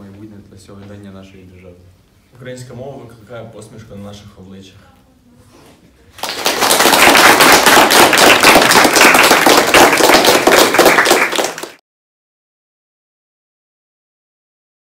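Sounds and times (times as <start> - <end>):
students applauding: 6.2 - 11.8.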